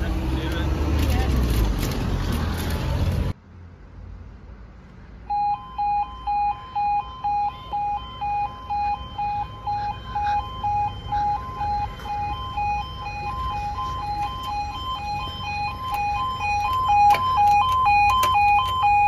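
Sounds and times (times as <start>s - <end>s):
two-tone level crossing alarm: 5.3s - 19.0s.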